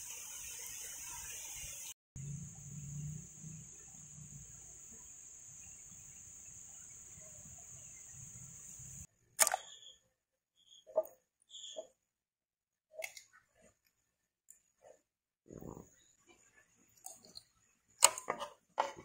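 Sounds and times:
high-pitched hiss: 0.0s - 9.1s
sharp click: 9.4s - 9.8s.

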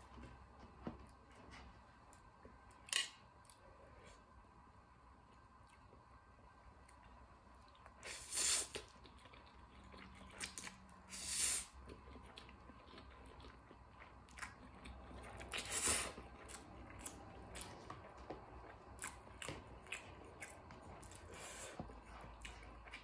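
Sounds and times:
wet chewing: 8.7s - 11.0s, 11.8s - 23.0s.

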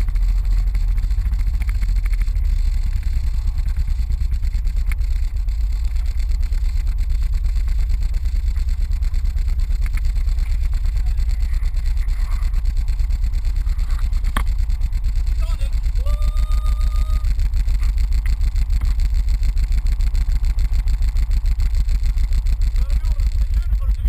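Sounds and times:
boat engine running: 0.0s - 24.0s.

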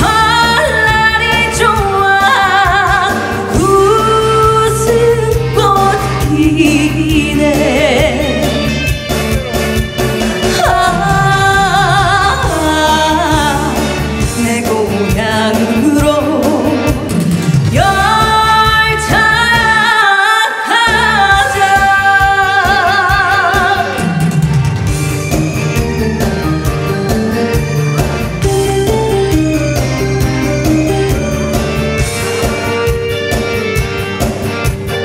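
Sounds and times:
woman singing into a microphone: 0.0s - 8.9s, 10.4s - 24.4s
backing music: 0.0s - 35.0s
guitar and keyboard instrumental: 0.0s - 35.0s.

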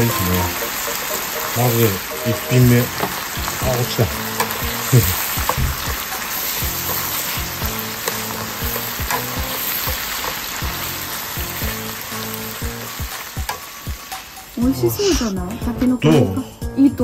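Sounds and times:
bamboo shoots sizzling in oil: 0.0s - 15.6s
chopsticks clicking against pan: 3.0s - 10.5s.

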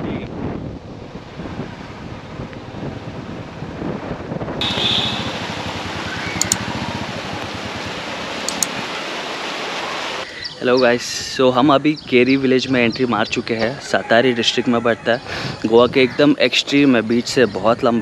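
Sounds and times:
wind rushing over microphone: 0.0s - 18.0s
low flutter: 1.6s - 9.4s.

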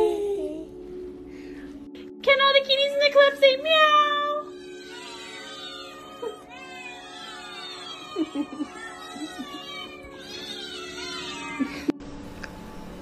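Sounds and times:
cats meowing: 4.4s - 12.0s.

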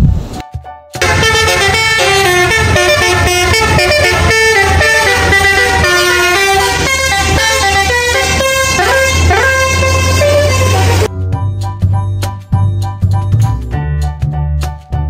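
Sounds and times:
multi-tone air horn tune: 1.0s - 11.2s.

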